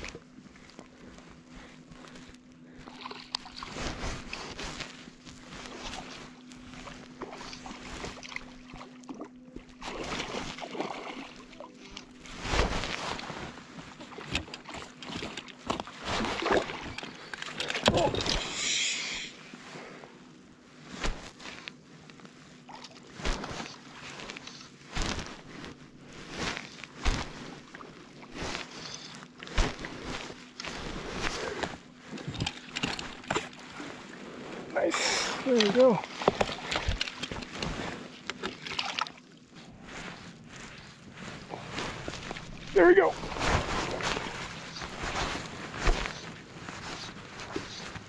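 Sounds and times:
water lapping against float tube: 2.7 - 18.6, 26.7 - 48.0.

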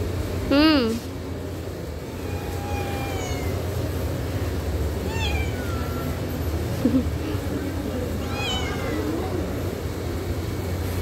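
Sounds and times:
kitten meowing: 2.2 - 3.6, 5.1 - 6.3, 8.2 - 9.2.

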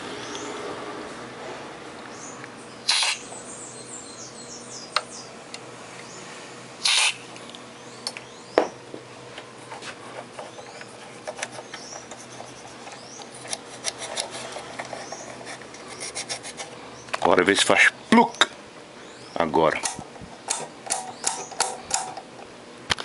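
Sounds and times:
small birds chirping: 0.2 - 0.6, 2.0 - 6.4, 7.7 - 8.9, 10.4 - 13.5, 14.9 - 17.3, 18.0 - 19.8, 21.0 - 21.8.

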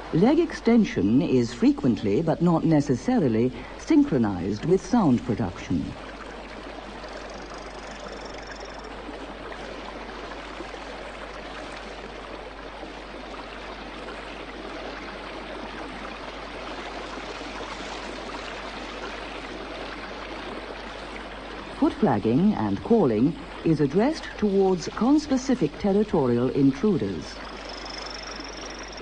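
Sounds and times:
stream rushing over boulders: 0.0 - 29.0
frog trill: 7.1 - 8.9, 27.5 - 29.0.

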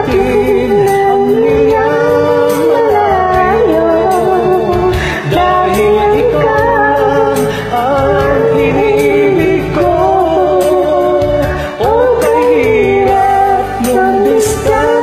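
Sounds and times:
karaoke ballad backing track: 0.0 - 15.0
man and woman singing duet: 0.0 - 15.0.

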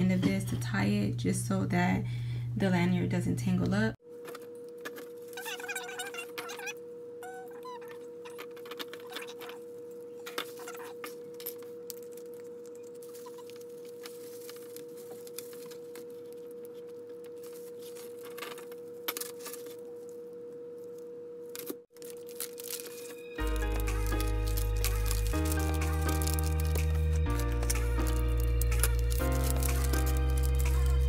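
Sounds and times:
plastic badge holders rustling: 21.9 - 31.0.

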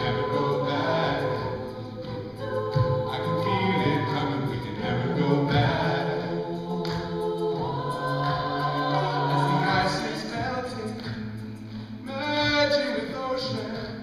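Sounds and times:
male lead singer: 0.0 - 1.7, 3.0 - 7.1, 8.7 - 11.4, 12.0 - 14.0
vocal group singing held chords: 0.0 - 14.0.

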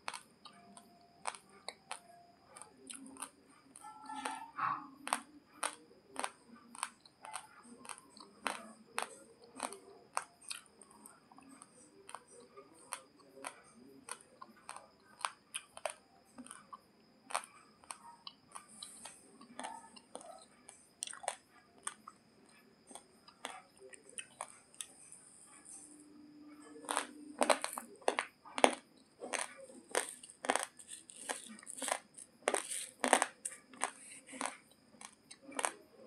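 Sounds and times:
soft mouth sounds: 0.0 - 36.0
raw rice crunching: 12.1 - 16.7, 17.3 - 18.0, 26.6 - 35.8.

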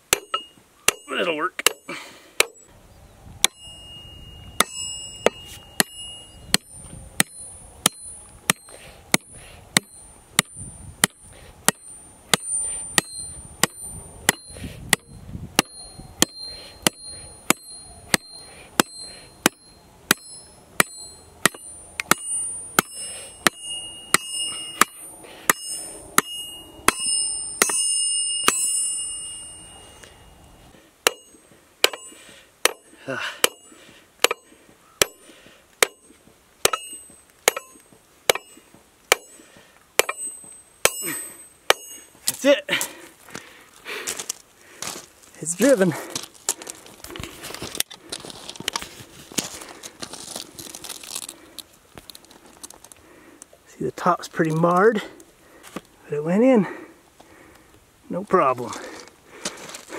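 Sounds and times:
hammer striking metal spike: 0.1 - 2.6, 4.6 - 29.7, 31.0 - 39.4, 40.0 - 42.4.

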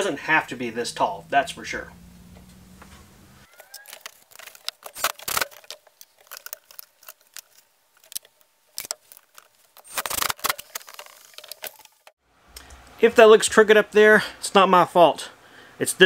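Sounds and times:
clicks and knocks of handling: 3.5 - 12.8.

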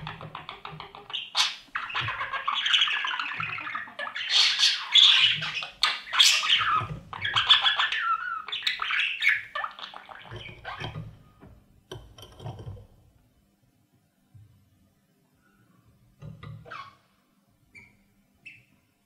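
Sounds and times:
budgerigars chattering and chirping: 0.0 - 11.0.

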